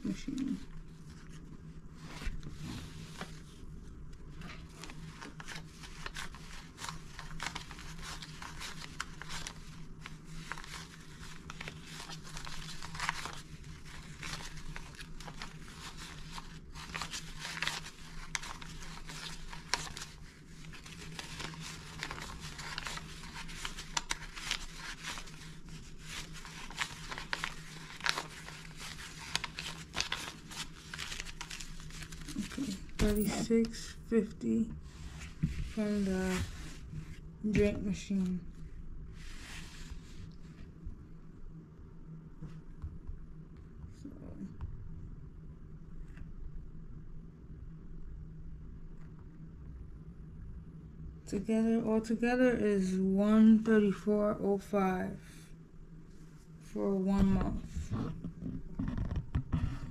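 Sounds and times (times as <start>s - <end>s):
low steady hum: 0.0s - 59.9s
bills being counted by hand: 4.9s - 33.8s.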